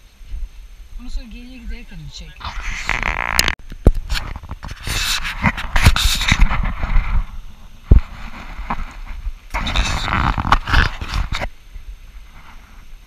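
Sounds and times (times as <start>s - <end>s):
wind buffeting microphone: 3.8s - 13.0s.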